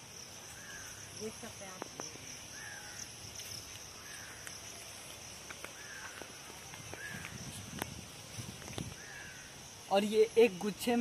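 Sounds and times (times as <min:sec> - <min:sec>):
footsteps on dry leaves: 0:02.6 - 0:09.3.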